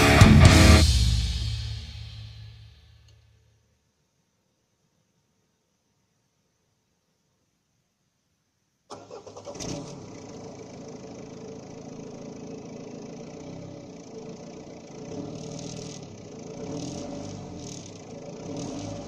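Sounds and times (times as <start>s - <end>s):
diesel engine running: 0.0s - 1.0s, 8.9s - 19.0s
diesel engine cranking: 8.9s - 19.0s.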